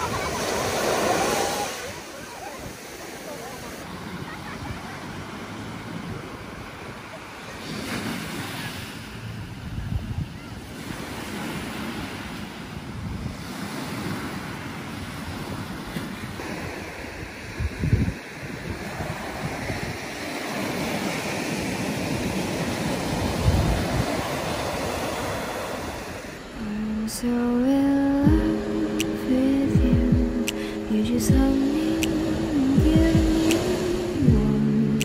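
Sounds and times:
surf washing up a beach: 0.0 - 35.0
wind rumble on microphone: 9.1 - 26.4, 29.6 - 35.0.

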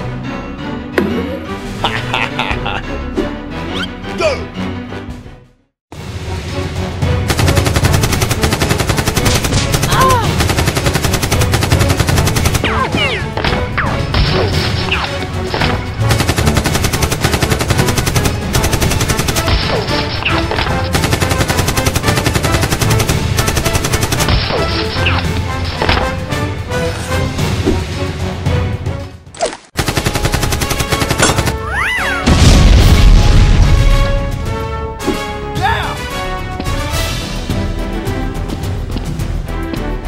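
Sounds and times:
rapid automatic gunfire: 7.3 - 13.0, 15.9 - 20.0, 20.8 - 24.8, 29.8 - 31.6.

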